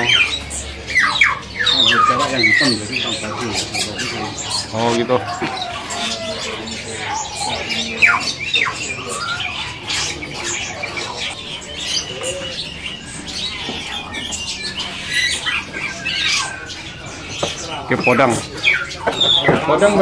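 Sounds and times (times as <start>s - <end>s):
caged songbirds calling: 0.0s - 20.0s.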